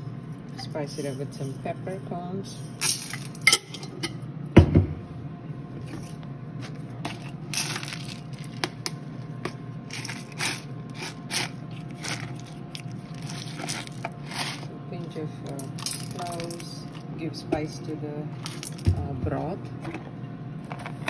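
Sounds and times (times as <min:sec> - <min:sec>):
steady low hum: 0:00.0 - 0:21.0
crunching and scraping: 0:05.8 - 0:14.8.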